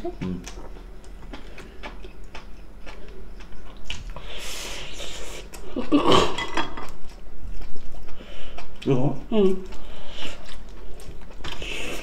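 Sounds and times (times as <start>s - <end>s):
chewing and mouth clicks: 0.0s - 4.3s, 6.8s - 12.0s
breathy hiss: 4.2s - 5.5s.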